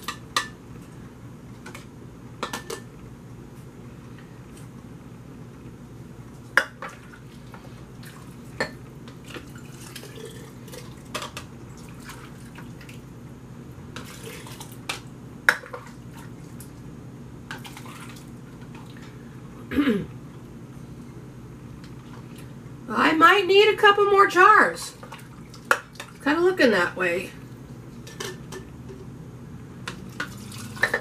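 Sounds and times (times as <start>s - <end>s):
liquid pouring splashes: 14.0s - 14.8s, 30.0s - 31.0s.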